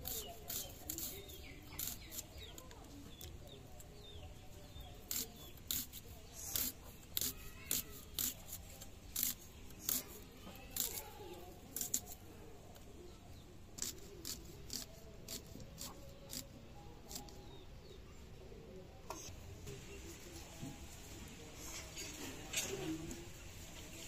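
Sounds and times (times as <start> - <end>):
knife cutting onions: 0.0 - 2.4, 5.0 - 12.2, 13.8 - 16.5.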